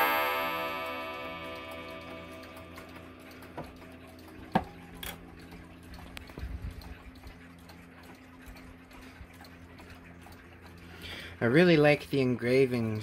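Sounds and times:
clock striking: 0.0s - 5.7s.

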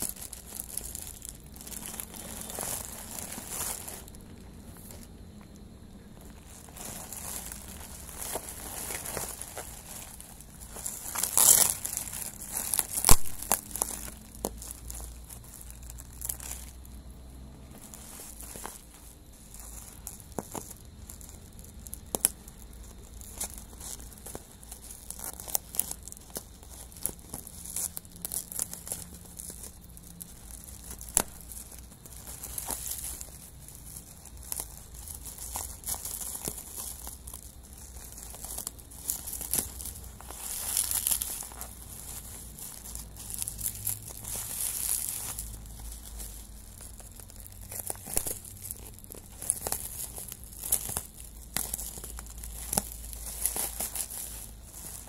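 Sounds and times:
bubble wrap crinkling: 0.0s - 55.0s.

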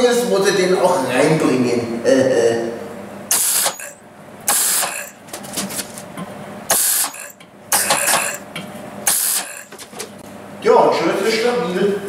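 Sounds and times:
arc welder bursts: 3.3s - 5.2s, 6.7s - 9.7s.

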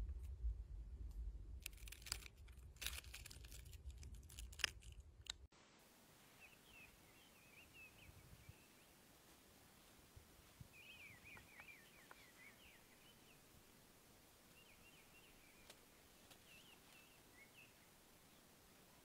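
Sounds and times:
faint warbling birdsong: 6.2s - 9.1s, 10.7s - 13.7s, 14.5s - 18.6s
faint clicks: 15.6s - 17.0s.

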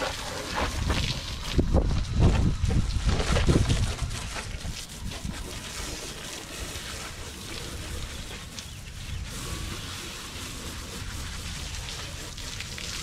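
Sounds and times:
faint water patter: 0.0s - 13.0s
hose spraying water on hull: 0.0s - 13.0s.

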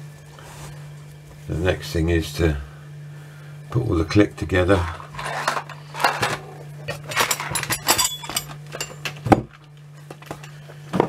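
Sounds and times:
metal clock parts clinking: 5.2s - 10.6s.

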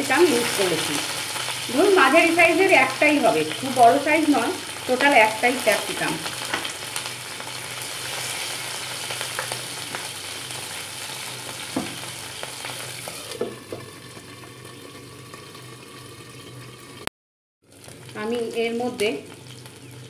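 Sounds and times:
vegetables sizzling in hot oil: 0.0s - 20.0s
lid knocking onto pan: 11.7s - 12.1s.

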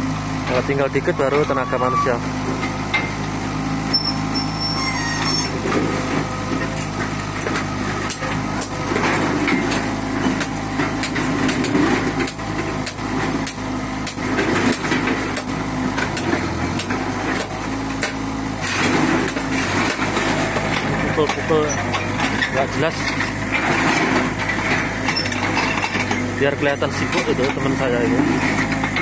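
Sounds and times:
excavator diesel engine running: 0.0s - 29.0s
scrap iron clanking: 18.7s - 26.4s.

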